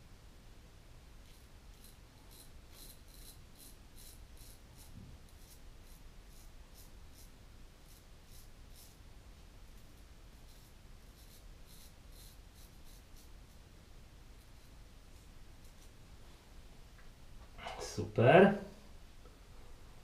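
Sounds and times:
razor scraping stubble: 0:01.2 - 0:09.0, 0:09.8 - 0:13.6.

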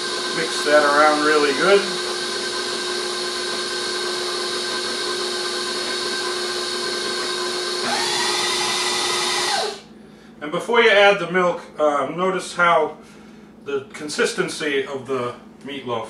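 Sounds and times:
electric kitchen mixer running: 0:00.0 - 0:09.9.

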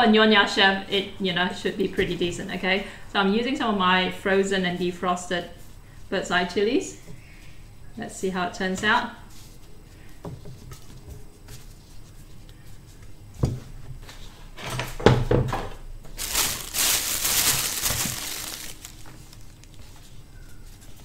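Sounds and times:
plastic bag crinkling: 0:16.1 - 0:20.1.

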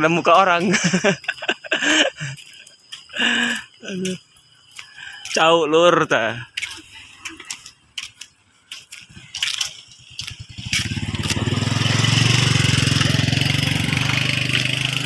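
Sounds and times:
motorcycle engine running: 0:08.9 - 0:15.0.

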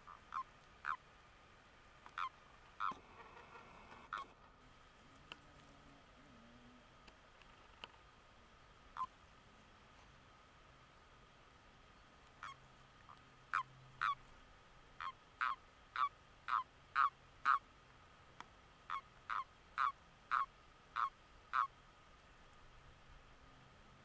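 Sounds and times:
toads croaking: 0:00.0 - 0:01.0, 0:02.1 - 0:04.5, 0:09.0 - 0:09.2, 0:12.4 - 0:12.6, 0:13.5 - 0:14.2, 0:15.0 - 0:17.6, 0:18.9 - 0:21.8.

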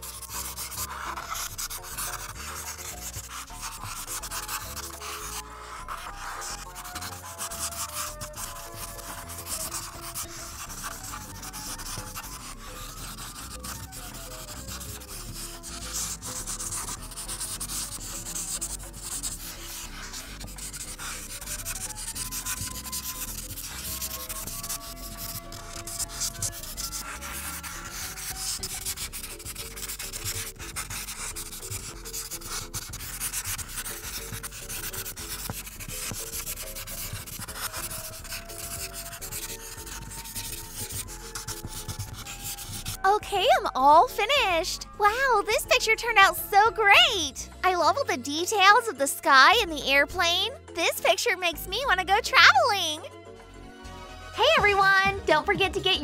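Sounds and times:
marker rubbing over paper: 0:00.0 - 0:53.1.

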